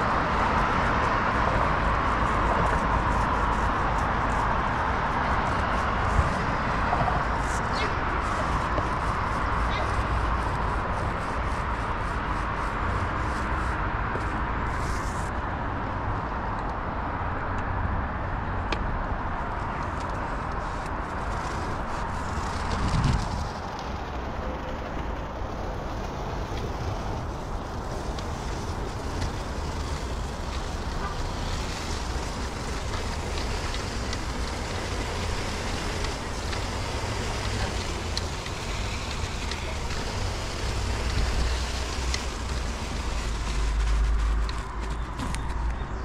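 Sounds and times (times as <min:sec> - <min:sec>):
wind buffeting microphone: 0:19.2 - 0:46.0.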